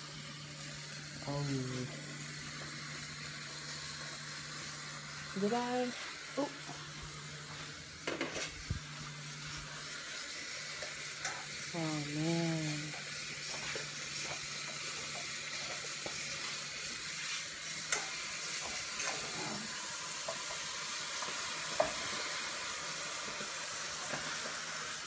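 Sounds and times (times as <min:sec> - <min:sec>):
pot boiling with hiss: 0:00.0 - 0:25.0.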